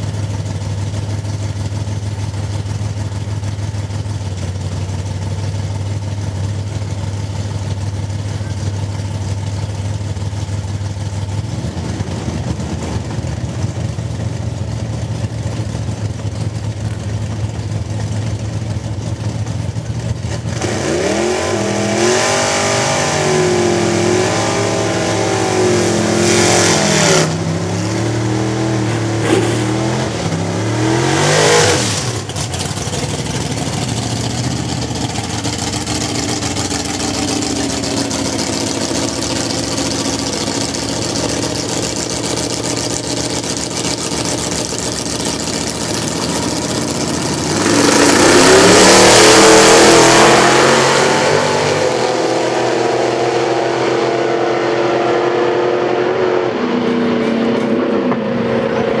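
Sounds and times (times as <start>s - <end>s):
racing car engines revving: 10.9s - 59.0s
full-throttle car launch: 20.2s - 59.0s.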